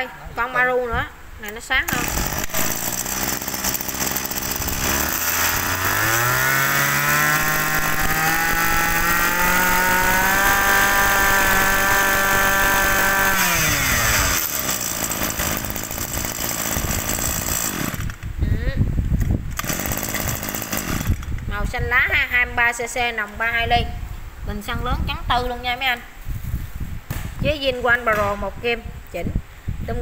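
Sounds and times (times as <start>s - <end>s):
brush-cutter engine revving: 1.9s - 18.3s, 19.5s - 21.4s.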